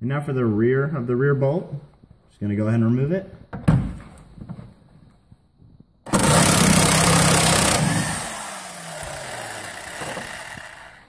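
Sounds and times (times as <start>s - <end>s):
impact wrench running: 6.1s - 11.0s.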